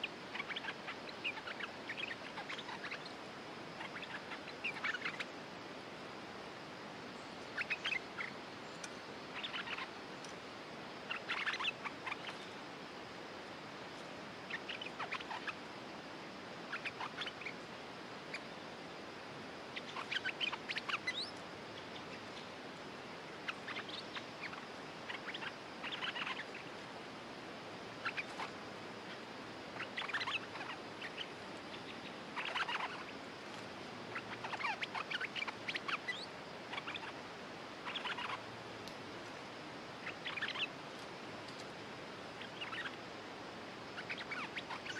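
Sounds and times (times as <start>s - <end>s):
bulbuls chattering calls: 28.0s - 33.2s, 37.8s - 38.5s.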